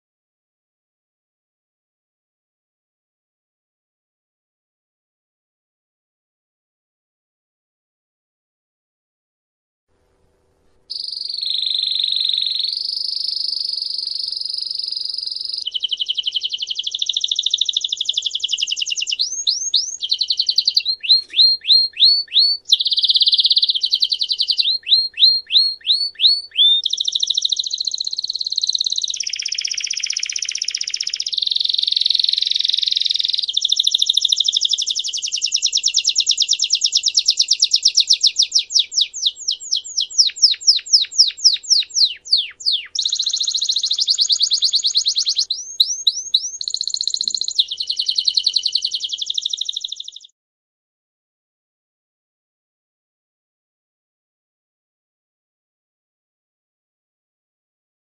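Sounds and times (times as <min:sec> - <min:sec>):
canary singing trills: 0:10.9 - 0:50.3.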